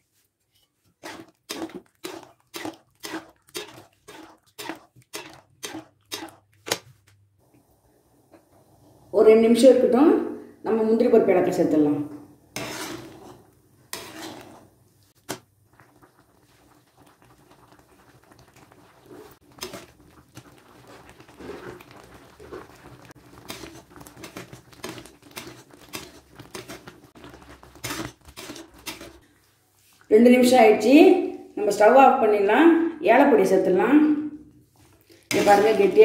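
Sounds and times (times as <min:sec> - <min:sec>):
metal ladle scraping a pan: 0:00.5 - 0:06.4, 0:12.5 - 0:15.4, 0:19.0 - 0:29.3, 0:35.1 - 0:36.0
thick liquid bubbling and popping: 0:00.9 - 0:07.6, 0:12.5 - 0:29.4.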